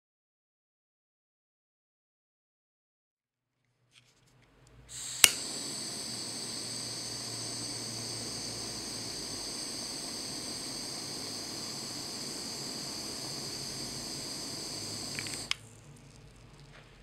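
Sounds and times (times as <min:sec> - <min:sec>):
blowtorch flame hissing: 0:04.9 - 0:15.6
blowtorch shutoff click: 0:04.9 - 0:15.6.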